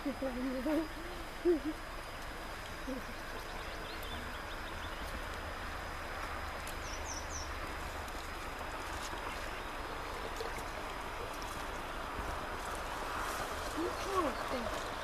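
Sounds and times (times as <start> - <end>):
creek rushing: 0.9 - 15.0
bird chirps: 6.8 - 7.6.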